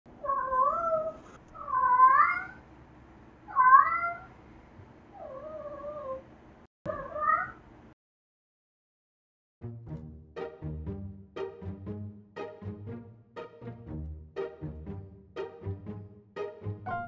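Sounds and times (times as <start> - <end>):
cat meowing: 0.2 - 2.6, 3.5 - 4.3, 6.9 - 7.6.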